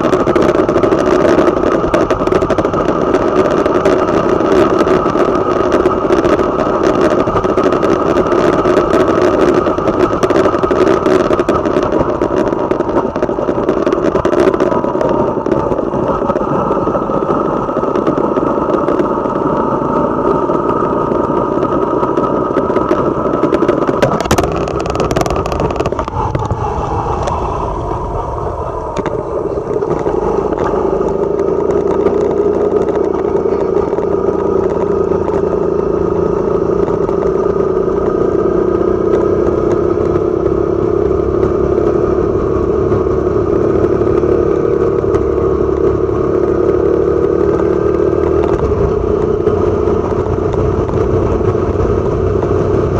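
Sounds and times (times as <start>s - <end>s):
motorcycle engine running: 0.0s - 52.9s.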